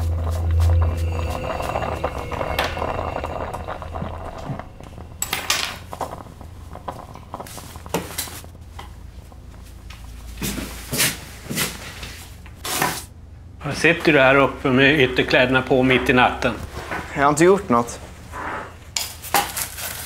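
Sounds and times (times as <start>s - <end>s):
background music: 0.0s - 7.8s.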